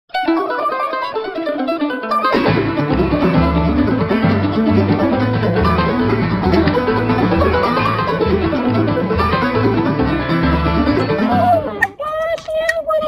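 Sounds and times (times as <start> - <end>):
bluegrass banjo and guitar tune: 0.1 - 12.8.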